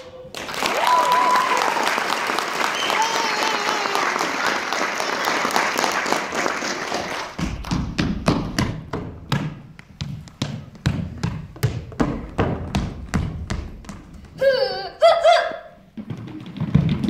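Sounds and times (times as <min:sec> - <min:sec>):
audience applause: 0:00.0 - 0:07.4
feet stamping on stage floor: 0:07.3 - 0:14.4, 0:15.9 - 0:17.0.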